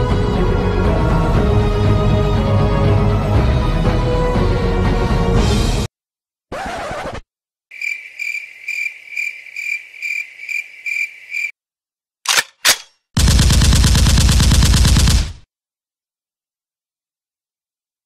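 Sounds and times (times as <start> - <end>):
gunshots: 12.3 - 15.5
machine-gun fire: 13.2 - 15.5.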